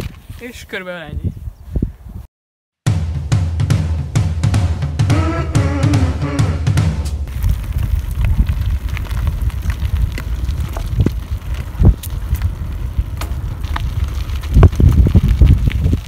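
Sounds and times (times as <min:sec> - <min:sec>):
wind rumbling on microphone: 0:00.0 - 0:02.3, 0:07.2 - 0:16.0
bike tyres crunching on gravel: 0:07.3 - 0:16.0.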